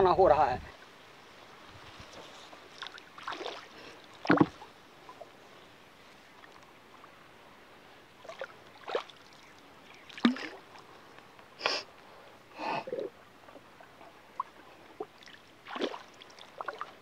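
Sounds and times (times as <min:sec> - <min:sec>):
pole splashing in shallow water: 0:02.7 - 0:04.7, 0:08.2 - 0:09.4, 0:10.0 - 0:10.8, 0:15.2 - 0:17.0.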